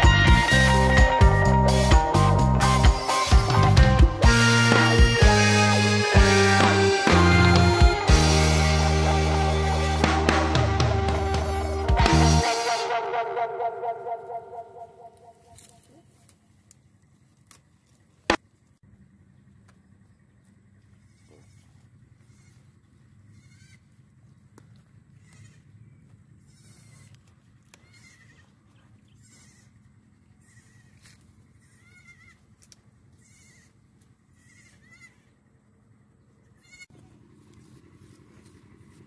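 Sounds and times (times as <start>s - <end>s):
goats bleating faintly: 27.8s - 29.8s.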